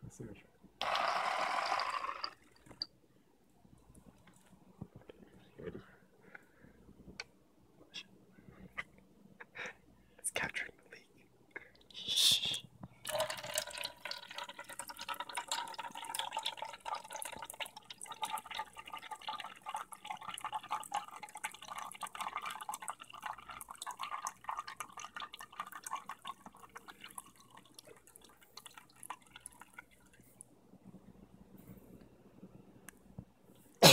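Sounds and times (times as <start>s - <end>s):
liquid stream splashing into cup: 13.1s - 23.2s.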